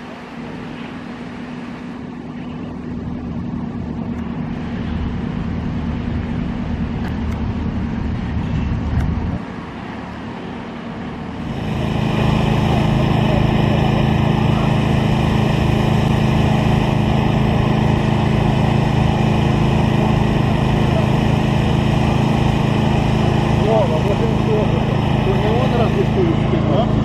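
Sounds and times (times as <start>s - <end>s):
quiet vehicle rumble: 0.0s - 27.0s
heavy truck engine idling: 11.2s - 27.0s.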